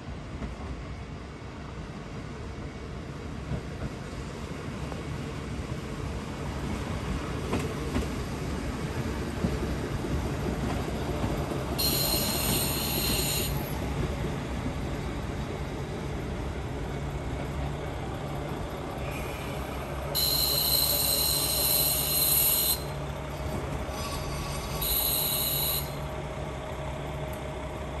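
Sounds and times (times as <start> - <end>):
diesel train engine drone: 0.0 - 28.0
high-pitched wheel squeal: 11.8 - 13.8, 20.2 - 23.0, 23.9 - 26.0.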